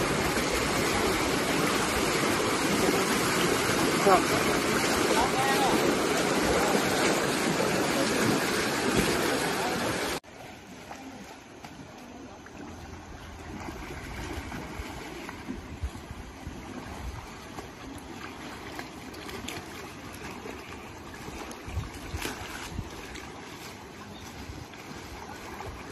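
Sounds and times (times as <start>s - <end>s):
floodwater rushing: 0.0s - 25.9s
wind buffeting microphone: 21.6s - 23.2s.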